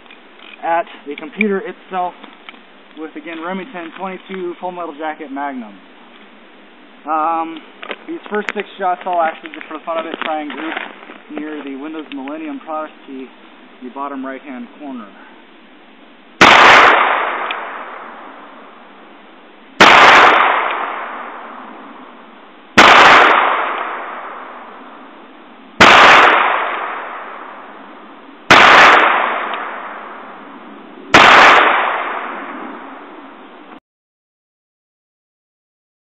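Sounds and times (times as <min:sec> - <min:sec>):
revolver gunshots: 0:16.4 - 0:18.5, 0:19.8 - 0:21.8, 0:22.8 - 0:24.8, 0:25.8 - 0:27.8, 0:28.4 - 0:30.4, 0:31.1 - 0:33.2.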